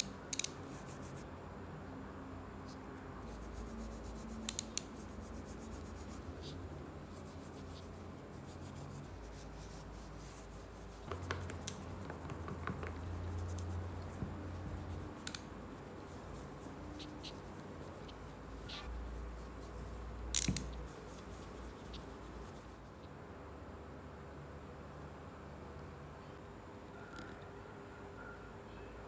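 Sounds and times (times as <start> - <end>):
low steady hum: 0.0 - 29.0
small objects clicking and tapping: 20.3 - 20.9.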